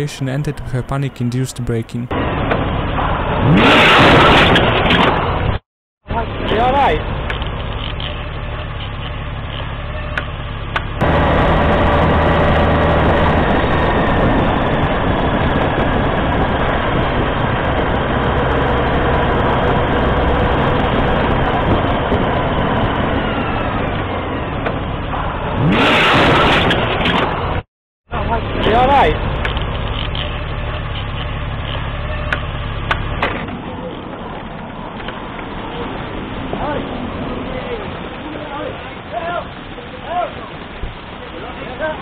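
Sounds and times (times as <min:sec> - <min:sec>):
wind rush: 0:11.0 - 0:24.4.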